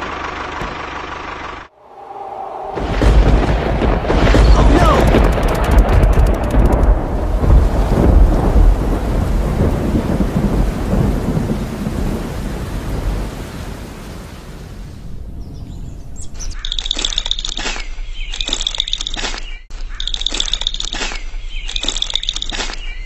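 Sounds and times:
thunder rumbling: 0:01.8 - 0:16.4
steady rain: 0:02.8 - 0:15.4
birds chirping: 0:15.1 - 0:23.0.

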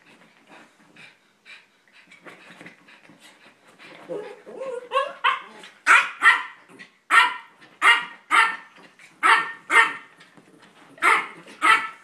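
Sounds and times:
small dog yapping: 0:11.0 - 0:12.0.

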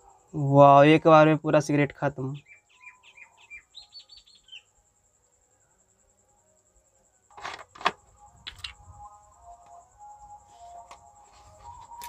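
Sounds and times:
soft handling noise: 0:10.4 - 0:12.0.

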